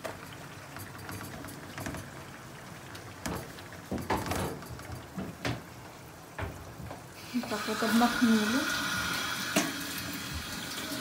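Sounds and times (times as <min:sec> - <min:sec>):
utensils and dishes clattering: 0:03.3 - 0:05.6.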